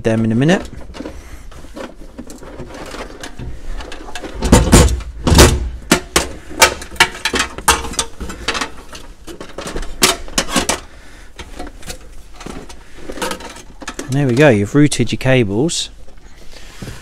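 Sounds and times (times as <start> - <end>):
heavy thumps: 3.4 - 8.7.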